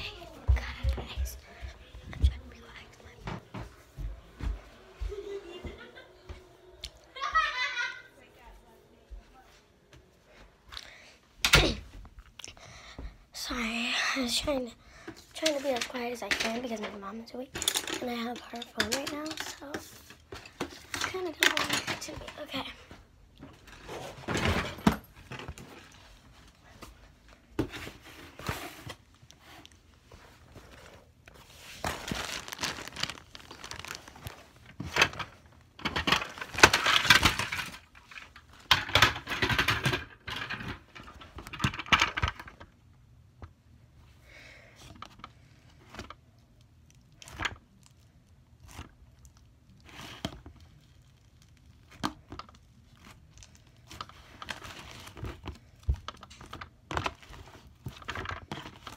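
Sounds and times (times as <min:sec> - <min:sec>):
slime squelching: 0:45.1 - 0:58.9.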